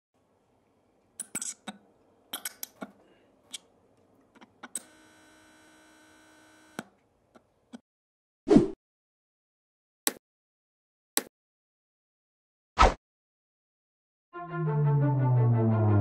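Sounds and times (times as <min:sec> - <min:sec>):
steady electronic buzz: 0:04.8 - 0:06.8.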